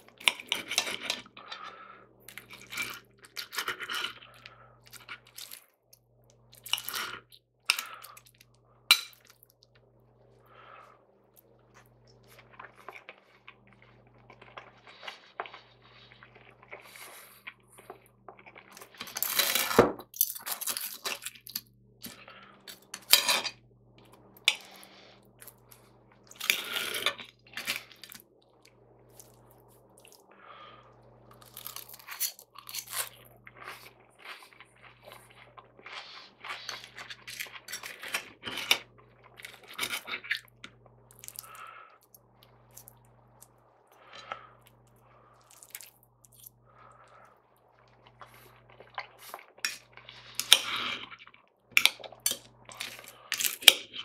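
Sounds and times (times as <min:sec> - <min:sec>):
cutlery scraping on plate: 0:00.3 - 0:01.3, 0:23.0 - 0:23.5
chewing: 0:24.0 - 0:54.0
fried bread crunching: 0:31.3 - 0:35.0.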